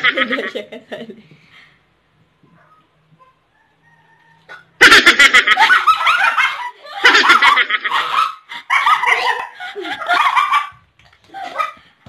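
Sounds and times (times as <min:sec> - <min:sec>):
women laughing loudly: 0:00.0 - 0:01.2, 0:04.8 - 0:11.8.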